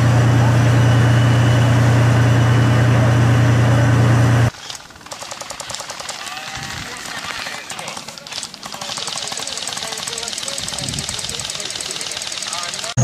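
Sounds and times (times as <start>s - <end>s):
tank diesel engine running: 0.0s - 6.2s, 7.3s - 13.0s
rapid sharp crackling: 4.5s - 13.0s.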